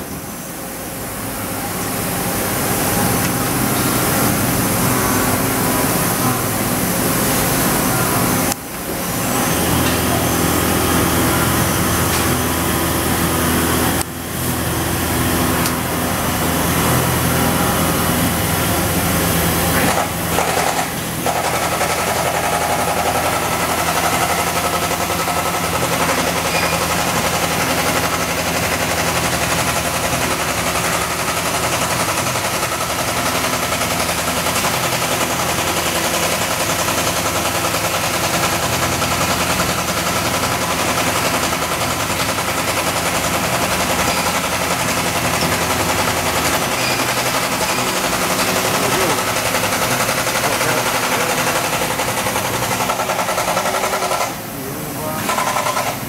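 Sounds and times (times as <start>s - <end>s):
machining center rattling: 14.7s - 56.0s.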